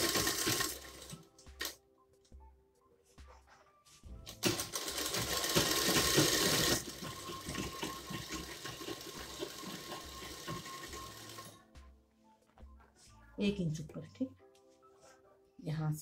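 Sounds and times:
sewing machine stitching: 0.0 - 1.7, 4.3 - 11.6.

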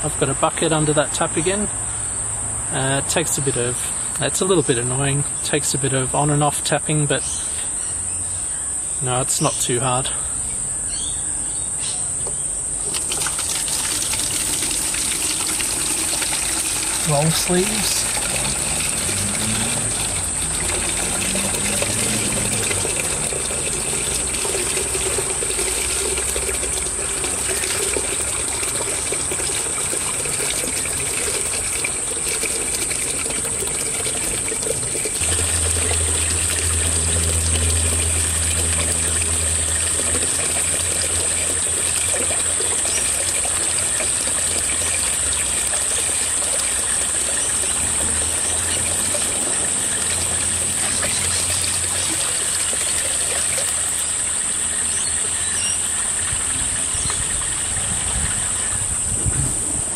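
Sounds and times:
water stirred in barrel: 12.8 - 58.8
water pouring into bucket: 12.8 - 59.9
low hum: 34.4 - 42.2.

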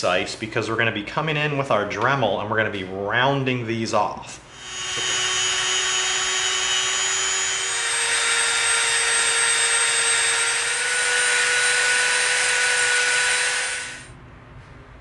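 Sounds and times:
rotary tool whine: 4.5 - 14.1.

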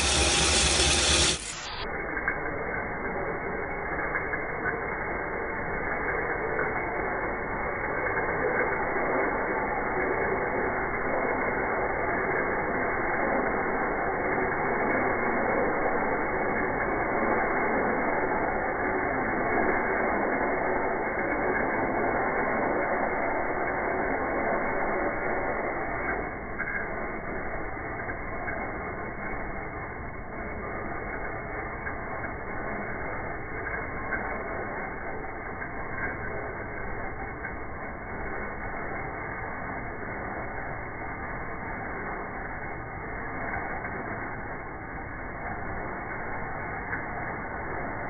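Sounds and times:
ice shaving machine grating: 0.0 - 1.7.

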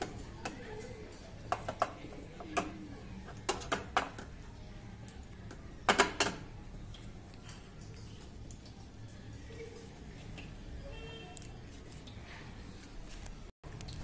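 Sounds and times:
knocks and clicks against steel bowl: 3.4 - 4.3, 5.9 - 6.4.

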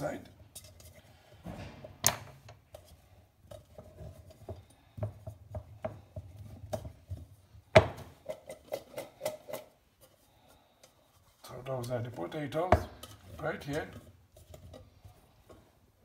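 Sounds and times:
kitchen items knocking on worktop: 7.7 - 8.2.

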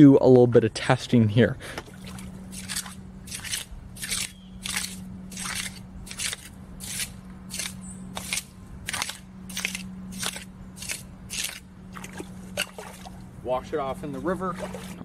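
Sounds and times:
knife blade rasping through wet sand: 2.5 - 11.6.

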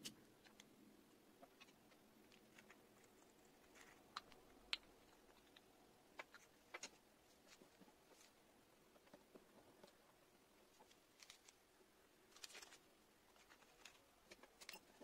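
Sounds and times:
faint clicks and taps: 0.0 - 11.6.

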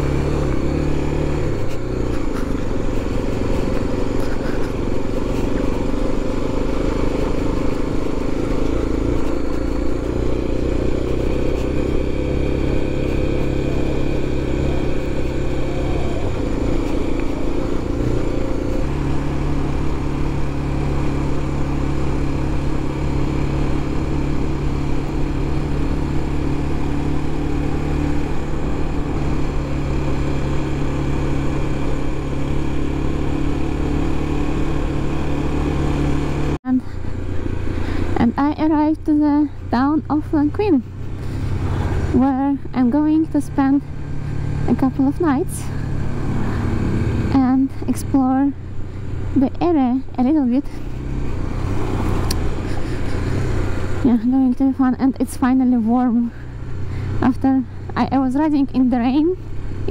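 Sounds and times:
motorcycle engine running: 0.0 - 59.9
wind and road noise: 0.0 - 59.9.

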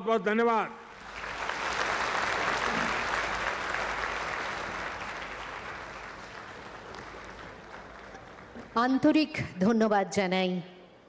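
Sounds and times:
audience applauding: 0.9 - 8.8.

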